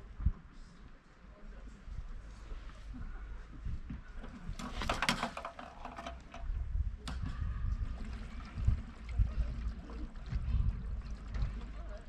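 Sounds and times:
low uneven rumble: 6.2 - 12.0.

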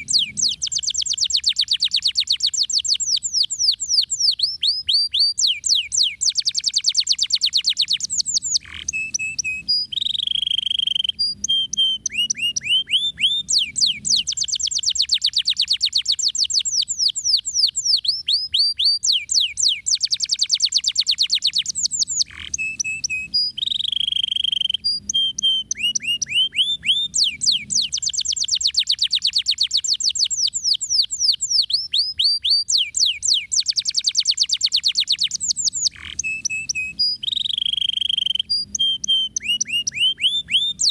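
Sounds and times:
canary singing trills: 0.0 - 40.9.

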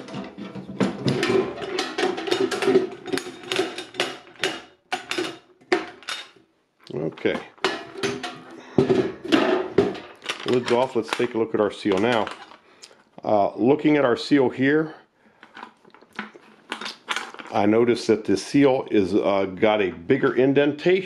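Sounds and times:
metal ammo can clanking: 0.0 - 6.4, 7.2 - 12.6.

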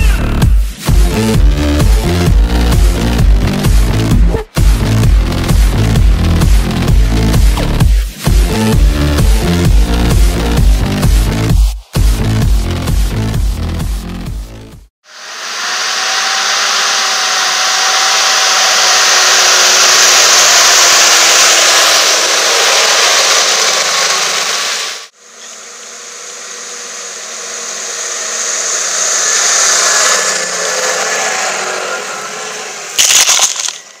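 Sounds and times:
faint tractor engine drone: 0.0 - 34.0
soil hitting camera: 33.0 - 33.9.

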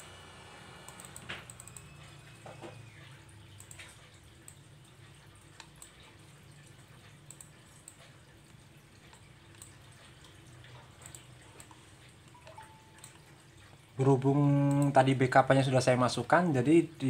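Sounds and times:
low steady hum: 0.0 - 17.0
computer mouse clicks: 0.9 - 2.0, 3.6 - 4.6, 5.5 - 13.8, 14.6 - 15.0.

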